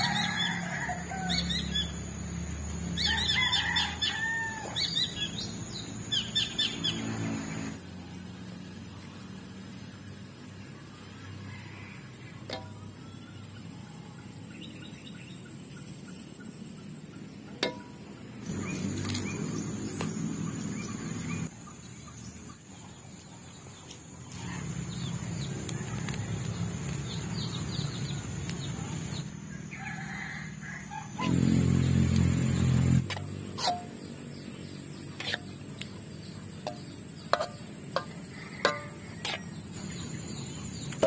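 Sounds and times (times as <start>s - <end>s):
frying and stirring in wok: 23.9s - 29.3s, 31.2s - 41.0s.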